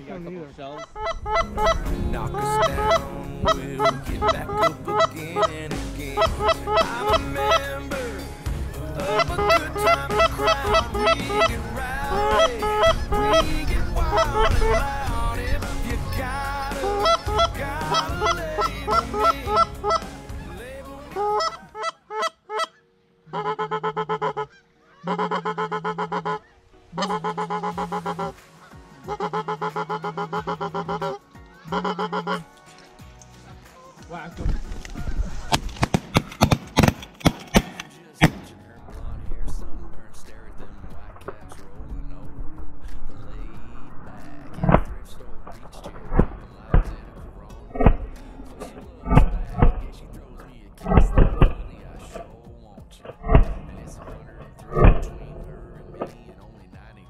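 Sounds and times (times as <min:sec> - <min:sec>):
goose honking: 0:00.7 - 0:07.9, 0:09.0 - 0:15.2, 0:16.0 - 0:32.5, 0:47.7 - 0:56.7.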